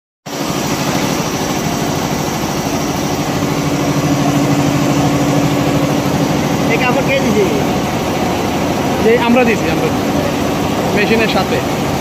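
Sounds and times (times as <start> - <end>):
embroidery machine clatter: 0.3 - 12.0
steady machine hum: 0.3 - 12.0.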